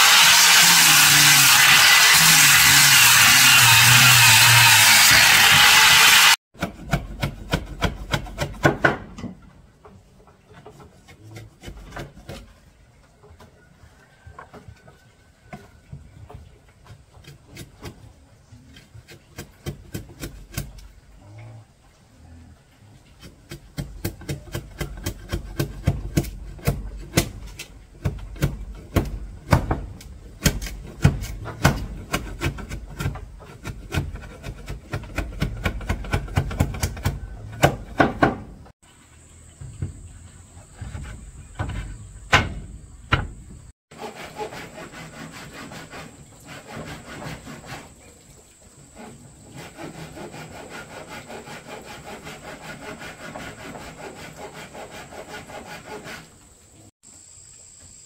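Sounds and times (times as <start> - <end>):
tools scraping wood: 0.0 - 8.7, 9.8 - 12.7, 23.0 - 38.6, 40.6 - 43.3, 43.9 - 48.2, 48.8 - 56.5
hand tools knocking wood: 6.6 - 10.0, 23.2 - 38.7.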